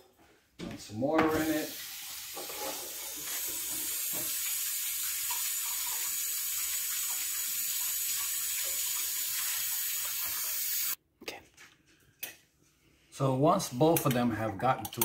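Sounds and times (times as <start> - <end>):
tap water filling container: 1.2 - 10.7.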